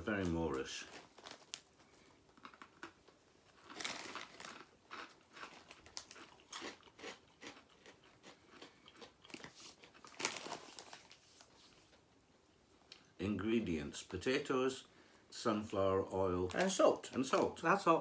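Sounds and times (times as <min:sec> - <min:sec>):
crisp packet crinkling: 0:00.0 - 0:11.5, 0:16.4 - 0:17.8
crunching and chewing: 0:00.2 - 0:11.2.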